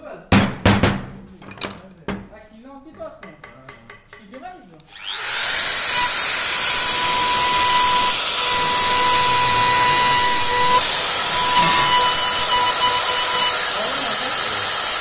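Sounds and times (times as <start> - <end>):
electric motor whine: 4.9 - 15.0
loud rushing hiss: 5.1 - 15.0.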